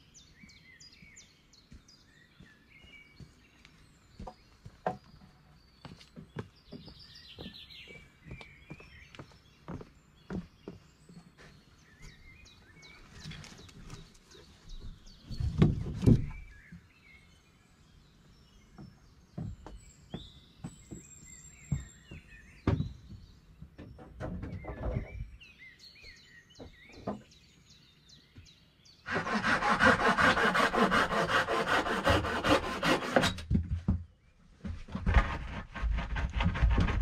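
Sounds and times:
small birds chirping: 0:00.0 - 0:33.2
knocks and thumps on wooden deck: 0:04.2 - 0:11.2, 0:14.8 - 0:16.5, 0:18.7 - 0:25.4, 0:32.4 - 0:37.0.

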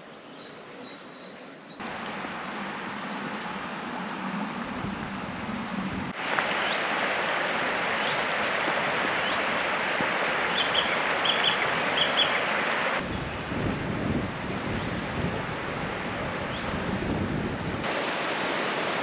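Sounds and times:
river water rushing: 0:01.8 - 0:13.1, 0:17.8 - 0:19.0
small birds chirping: 0:04.8 - 0:12.5.

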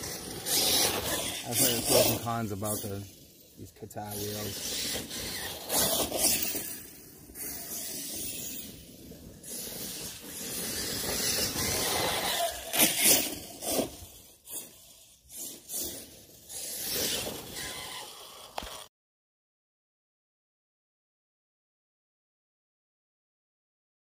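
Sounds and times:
toy car tyres scrabbling on ground: 0:00.0 - 0:18.9.

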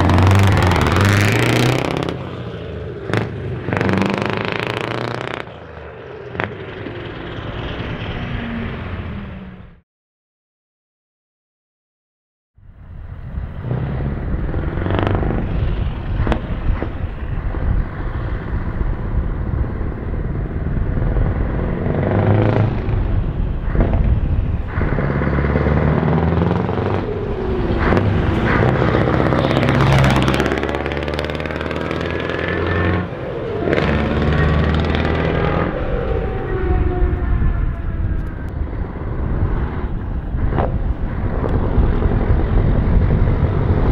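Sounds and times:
truck diesel engine revving: 0:00.0 - 0:09.6, 0:13.4 - 0:37.4.

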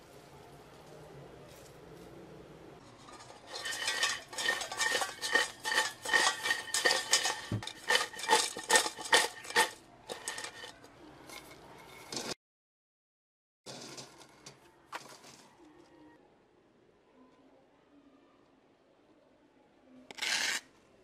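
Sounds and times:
fries rattling in a metal pot: 0:02.8 - 0:12.4, 0:13.7 - 0:15.6.

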